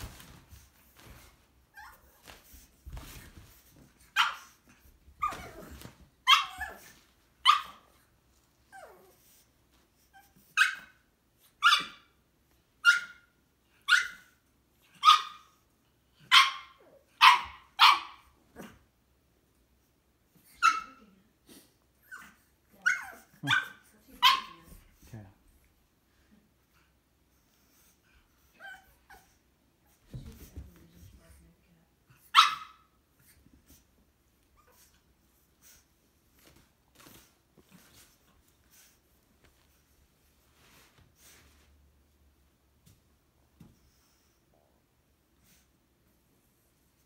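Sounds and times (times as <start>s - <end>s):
puppy barking: 4.2s - 4.6s, 7.4s - 7.9s, 15.0s - 15.5s, 16.3s - 18.3s, 22.8s - 24.7s, 32.3s - 32.9s.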